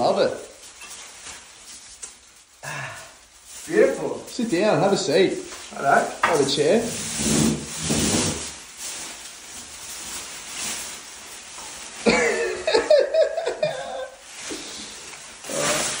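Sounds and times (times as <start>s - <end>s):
faint rustling: 0.0s - 16.0s
man laughing: 12.1s - 14.2s.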